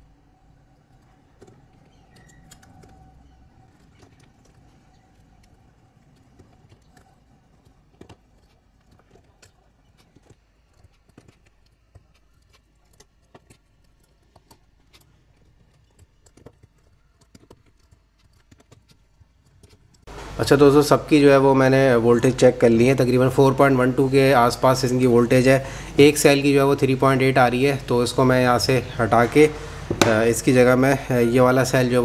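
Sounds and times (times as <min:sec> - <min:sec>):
battery cells clicking and tapping: 0:00.9 - 0:20.1.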